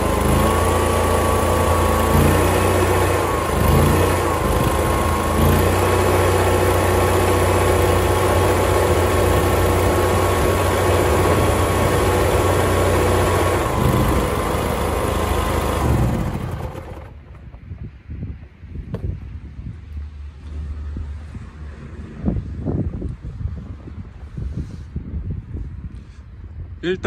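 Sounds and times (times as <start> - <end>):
engine running and running down: 0.0 - 17.9.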